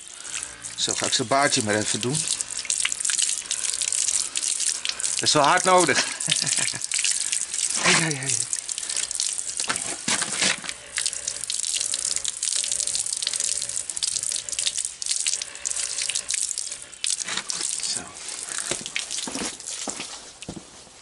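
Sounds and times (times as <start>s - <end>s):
hose water splashing on concrete: 0.0s - 20.6s.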